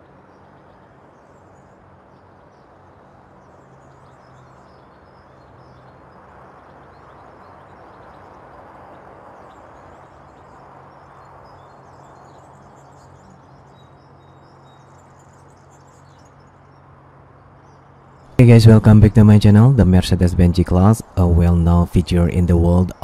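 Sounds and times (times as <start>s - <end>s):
birds chirping: 17.6s - 23.0s
steady low hum: 17.6s - 23.0s.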